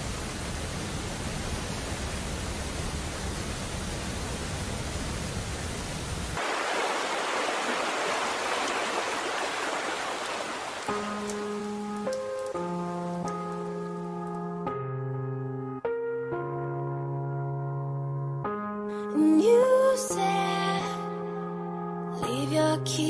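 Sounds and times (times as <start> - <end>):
rushing hiss: 0.0 - 12.3.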